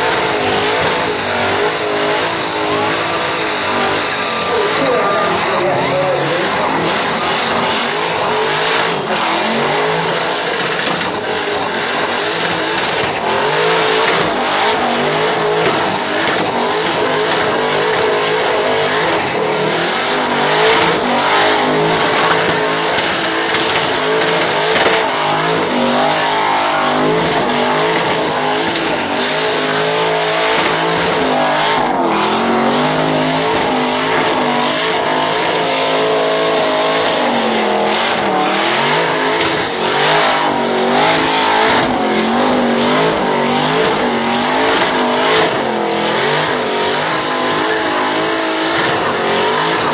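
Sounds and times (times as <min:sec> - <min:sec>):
engine revving high: 0:00.0 - 0:49.9
tyres squealing and hissing: 0:00.7 - 0:37.2.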